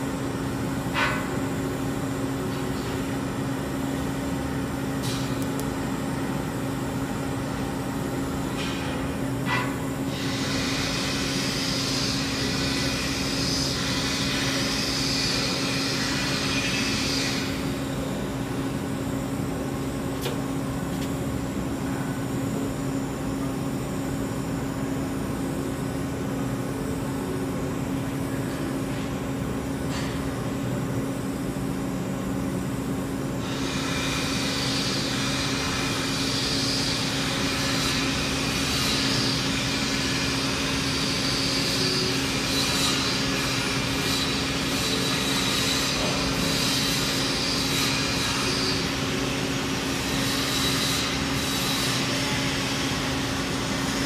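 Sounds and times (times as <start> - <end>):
welding arc hiss: 8.6 - 18.6, 33.4 - 54.0.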